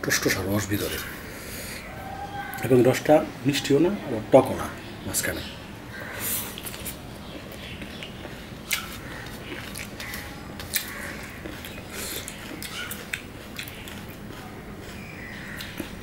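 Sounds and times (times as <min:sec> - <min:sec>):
chewing juicy food: 0:06.4 - 0:16.0.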